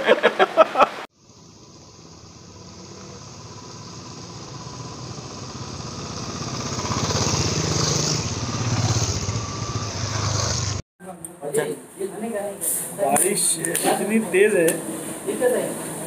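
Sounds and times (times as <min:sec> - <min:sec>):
motorcycle engines: 0:01.1 - 0:10.8.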